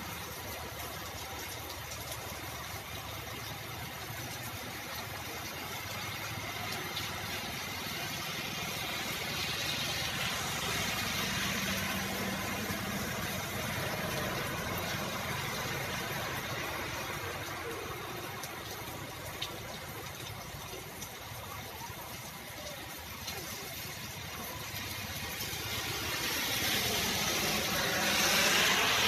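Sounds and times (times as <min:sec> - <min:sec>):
heavy rain on wet road: 0:00.0 - 0:29.0
tyres hissing on wet road: 0:00.0 - 0:29.0
motorbike passing: 0:07.6 - 0:17.2, 0:24.9 - 0:29.0.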